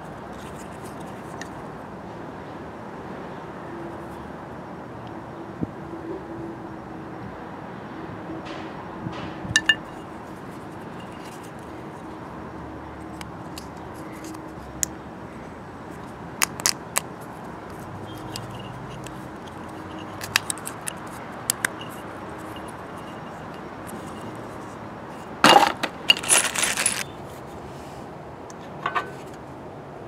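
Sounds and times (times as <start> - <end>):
background noise: 0.0 - 30.0
metal parts clinking: 18.2 - 24.4, 25.5 - 27.1.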